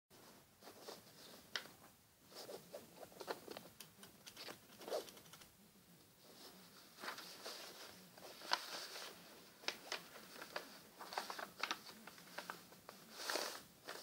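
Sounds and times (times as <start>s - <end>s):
paper rustling on cloth: 6.2s - 14.0s.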